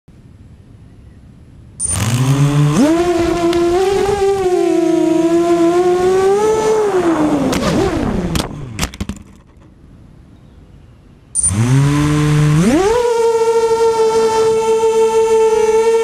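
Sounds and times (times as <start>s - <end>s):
drone motors whining: 1.8s - 9.0s, 11.4s - 16.0s.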